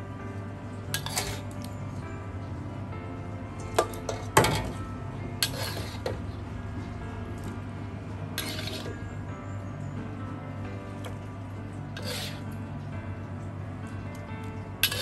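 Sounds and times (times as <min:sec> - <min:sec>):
soft background music: 0:00.0 - 0:15.0
metal spatula scraping a wok: 0:01.0 - 0:01.6, 0:05.4 - 0:06.2, 0:08.4 - 0:09.0, 0:12.0 - 0:12.5.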